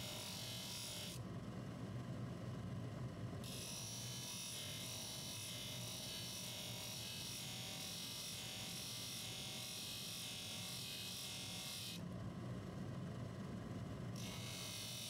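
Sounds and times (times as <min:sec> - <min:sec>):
faint low motor hum: 0:00.0 - 0:15.0.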